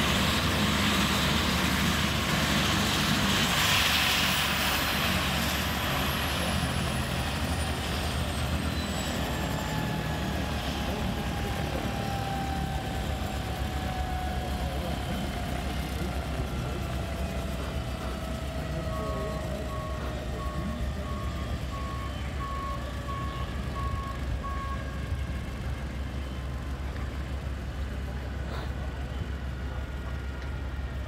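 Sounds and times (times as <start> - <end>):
helicopter rotor rumble: 0.0 - 31.0
turbine whine: 0.0 - 31.0
steady beeping tone: 15.1 - 26.4.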